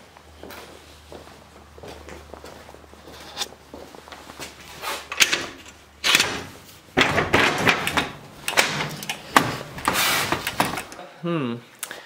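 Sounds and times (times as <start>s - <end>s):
metal latch rattling: 5.1s - 9.4s
garage door knocking and scraping: 5.2s - 10.9s.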